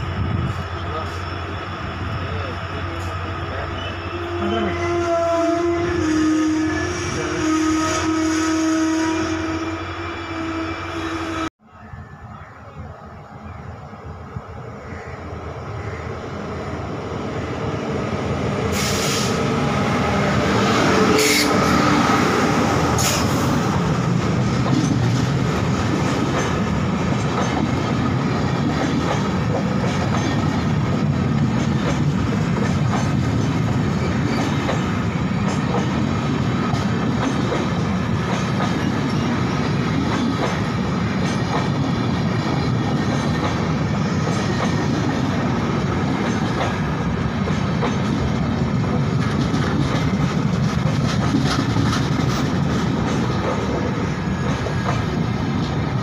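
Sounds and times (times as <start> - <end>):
train wheels rumbling on rails: 15.6 - 56.0.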